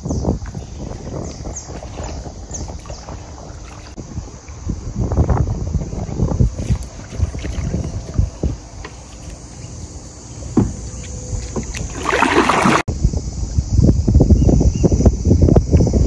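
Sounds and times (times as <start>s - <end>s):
wind on microphone: 0.0s - 16.0s
paddle splash: 0.4s - 4.6s, 6.6s - 12.9s
kayak paddle dipping in water: 0.4s - 4.7s, 6.6s - 12.9s.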